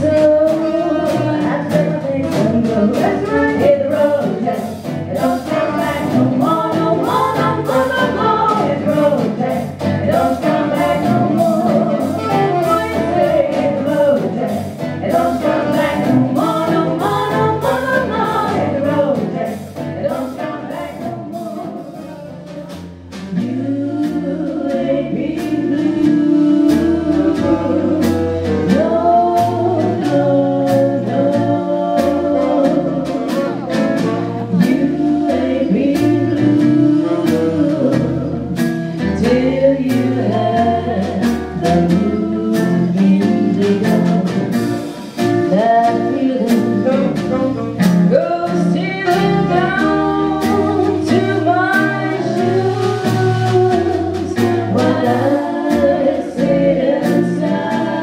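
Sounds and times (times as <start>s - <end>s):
women singing close harmony: 0.0s - 22.3s, 23.3s - 44.8s, 45.4s - 58.0s.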